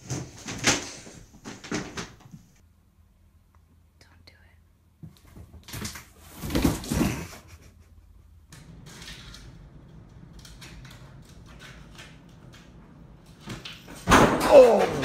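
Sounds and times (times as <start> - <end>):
cardboard box hitting floor: 5.8 - 7.3.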